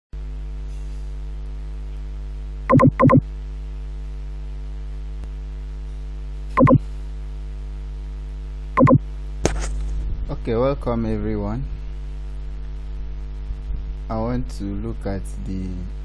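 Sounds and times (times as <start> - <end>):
electrical mains hum: 1.2 - 16.0
short loud beeps: 2.7 - 3.2, 6.6 - 6.8, 8.8 - 9.0.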